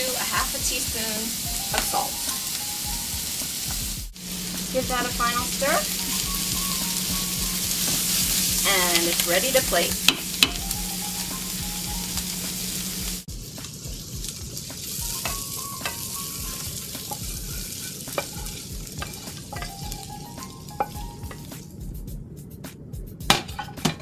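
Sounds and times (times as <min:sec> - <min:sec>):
food sizzling in a skillet: 0:00.0 - 0:21.8
wooden spoon scraping and tapping: 0:17.0 - 0:19.8.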